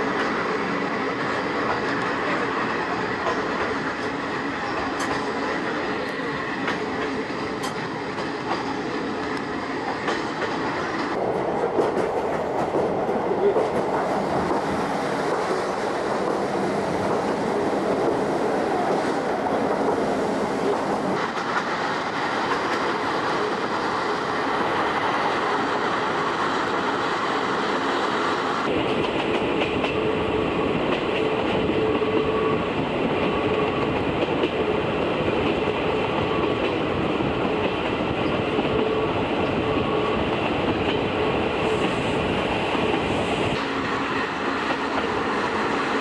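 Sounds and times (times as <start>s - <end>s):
wheels clacking over rail joints: 0.0s - 18.2s
train running gear rumble: 0.0s - 46.0s.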